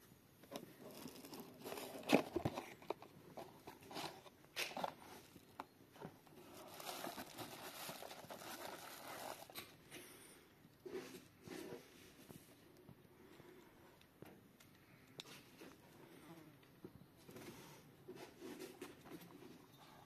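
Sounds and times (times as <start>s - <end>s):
plastic packing crinkling: 0.5s - 9.8s
cardboard box being opened: 0.8s - 5.4s, 6.4s - 9.5s.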